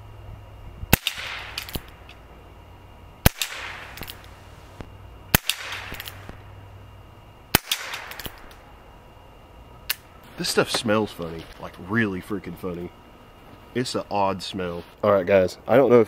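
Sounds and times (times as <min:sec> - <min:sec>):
quiet revolver shots: 0:00.9 - 0:02.2, 0:03.2 - 0:06.6, 0:07.5 - 0:08.7.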